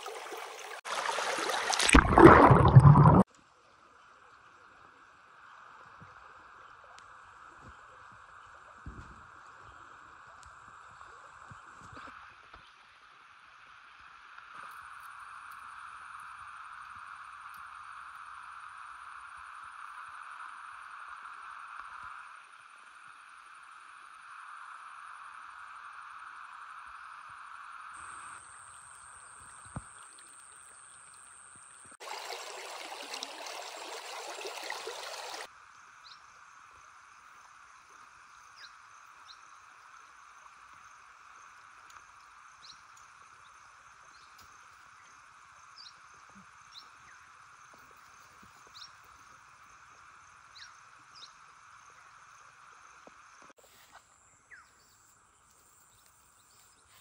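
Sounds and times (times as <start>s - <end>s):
river water flowing: 0.0s - 3.2s, 29.9s - 35.5s.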